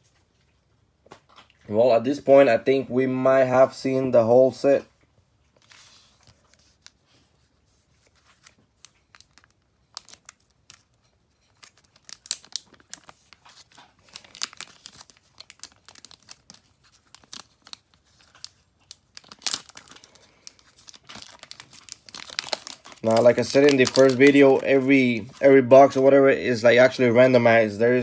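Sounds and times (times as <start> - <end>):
foil wrapper crinkling and ripping: 7.9 - 26.9.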